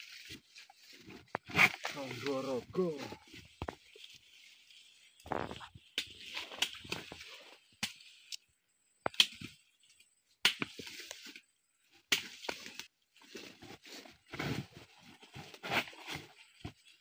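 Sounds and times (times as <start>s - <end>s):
roots rustling and knocking: 0.0s - 17.0s
machete chopping roots: 9.1s - 9.6s, 10.4s - 11.2s, 12.1s - 12.8s.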